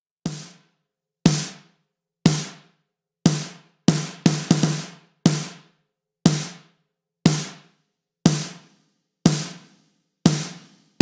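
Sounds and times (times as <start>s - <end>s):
acoustic drum hits with reverb: 0.3s - 0.6s, 1.3s - 1.7s, 2.3s - 2.7s, 3.3s - 5.7s, 6.3s - 6.7s, 7.3s - 7.7s, 8.3s - 11.0s.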